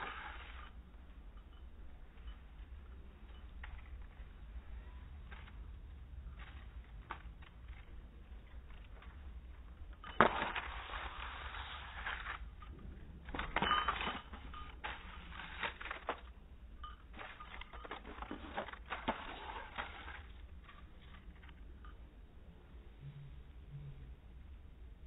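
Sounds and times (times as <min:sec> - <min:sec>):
paper rustling and crackling: 0:05.2 - 0:16.4, 0:17.1 - 0:21.6.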